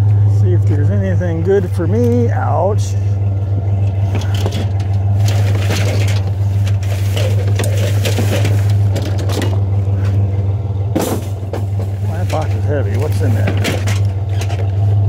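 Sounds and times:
pickup engine idling: 0:00.0 - 0:15.0
junk rummaged in trash cart: 0:03.6 - 0:15.0.

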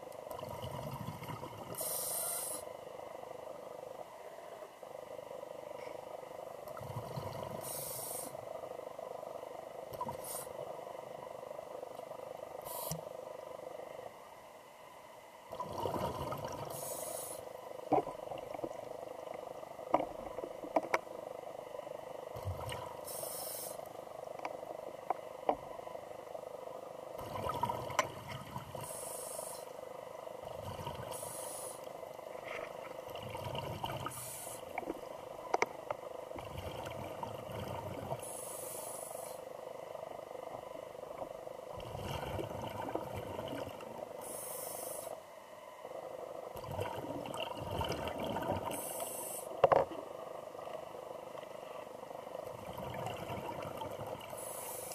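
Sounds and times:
steady hum: 0:00.0 - 0:54.9
diver breathing through regulator: 0:44.2 - 0:45.2
underwater bubbling rumbles: 0:46.6 - 0:48.8, 0:52.5 - 0:54.3.

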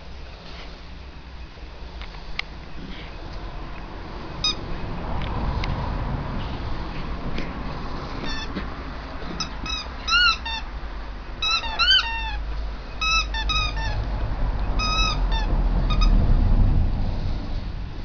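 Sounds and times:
steady low rumble: 0:00.0 - 0:11.4, 0:12.3 - 0:18.0
puppies yelping and whining: 0:11.4 - 0:12.4.

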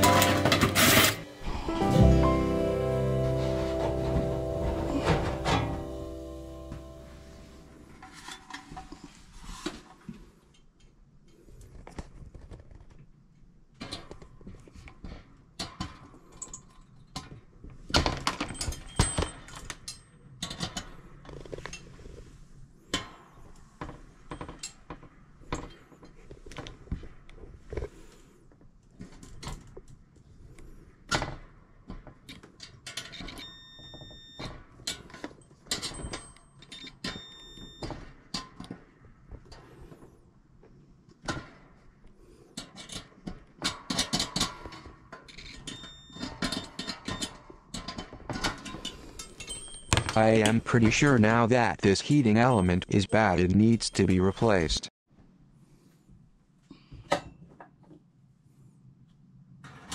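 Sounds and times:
tools and parts clattering: 0:00.0 - 0:01.4, 0:07.9 - 0:10.0, 0:13.8 - 0:22.0, 0:32.0 - 0:38.8, 0:42.6 - 0:50.6.

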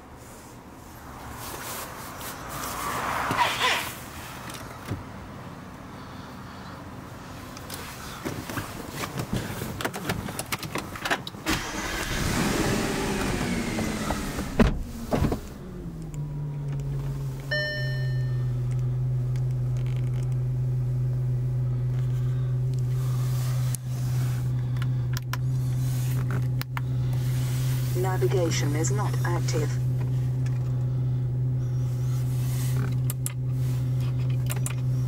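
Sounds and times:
car engine starting and idling: 0:02.6 - 0:35.0
dashboard electronic chime: 0:17.5 - 0:18.5.

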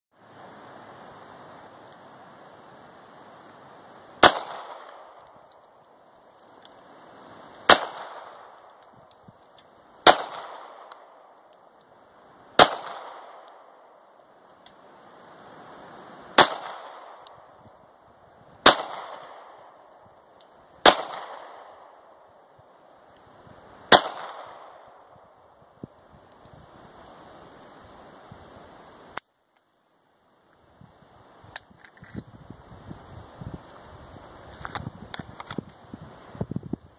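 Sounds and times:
pistol shots: 0:04.2 - 0:05.1, 0:07.7 - 0:08.5, 0:10.0 - 0:11.2, 0:12.6 - 0:13.5, 0:16.4 - 0:17.2, 0:18.6 - 0:19.5, 0:20.8 - 0:21.9, 0:23.9 - 0:24.8.

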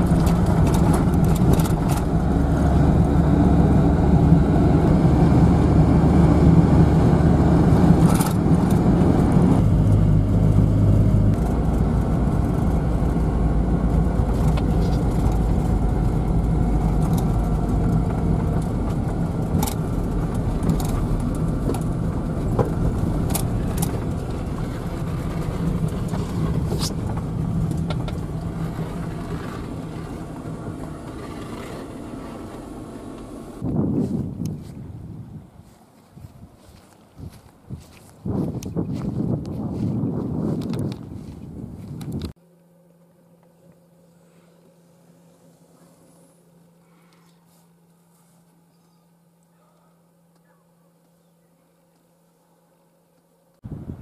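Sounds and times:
van engine and road noise: 0:00.0 - 0:42.6, 0:53.6 - 0:54.0.

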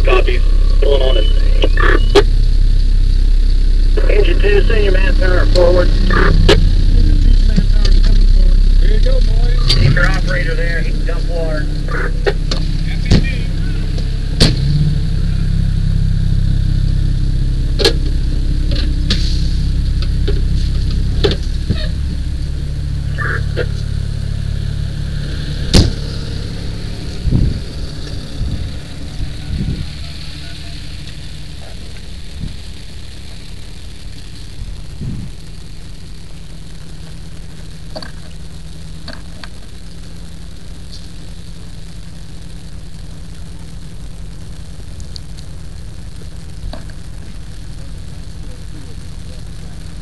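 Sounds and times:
fire engine rumbling: 0:00.0 - 0:50.0
sharp bang: 0:09.4 - 0:15.0, 0:25.6 - 0:26.5.

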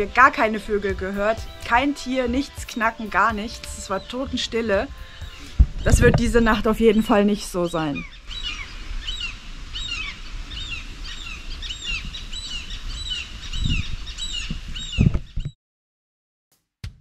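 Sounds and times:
waterbirds calling: 0:00.0 - 0:15.1
low rumble: 0:03.2 - 0:07.6.

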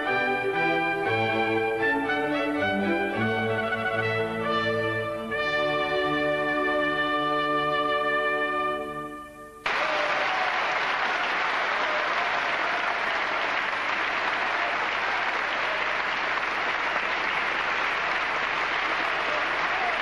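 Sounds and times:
trumpet and orchestra chord: 0:00.0 - 0:09.6
audience applauding: 0:09.6 - 0:20.0.

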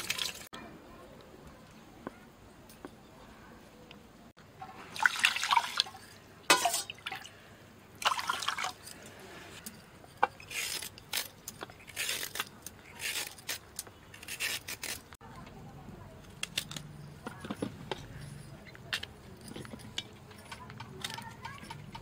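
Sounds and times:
water pouring and splashing: 0:00.0 - 0:00.5, 0:04.6 - 0:07.4, 0:08.0 - 0:09.0
vegetable peeler scraping carrot: 0:10.2 - 0:15.2.

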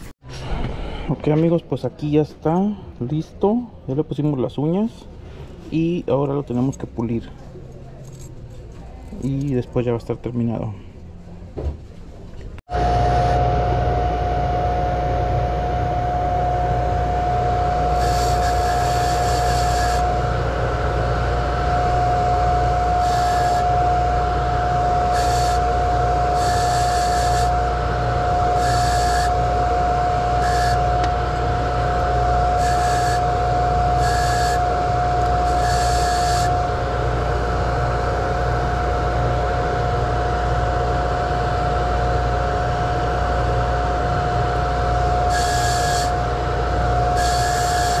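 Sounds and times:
polishing motor humming and whining: 0:12.7 - 0:48.0.

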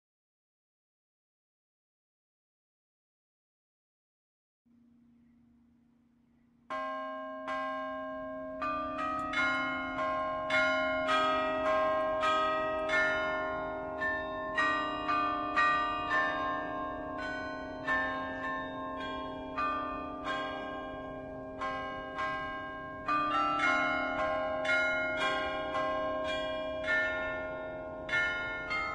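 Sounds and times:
faint steady hum: 0:04.7 - 0:06.7
bells ringing: 0:06.7 - 0:28.9.

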